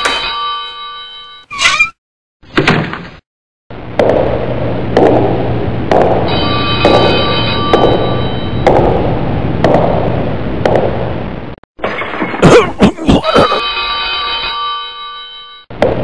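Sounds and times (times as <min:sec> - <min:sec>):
steady low hum: 0:03.7 - 0:11.6
sustained ringing tones: 0:06.3 - 0:08.7.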